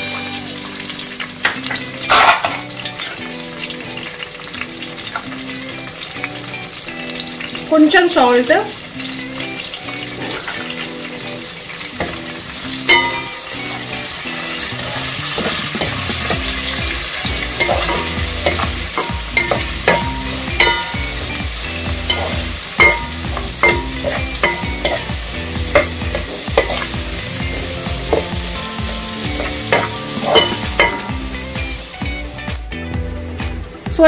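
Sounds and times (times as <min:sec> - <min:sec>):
vegetables sizzling in hot oil: 0:00.0 - 0:34.0
metal spoon scraping a pan: 0:02.0 - 0:03.2, 0:14.7 - 0:21.2, 0:22.0 - 0:31.2.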